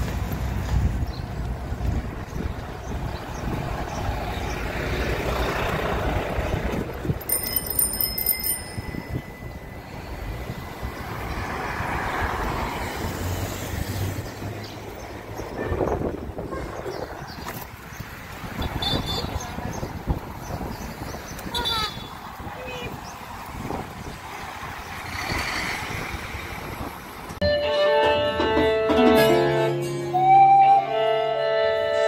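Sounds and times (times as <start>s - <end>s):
street traffic: 0.0s - 32.0s
wind rushing: 22.1s - 27.4s.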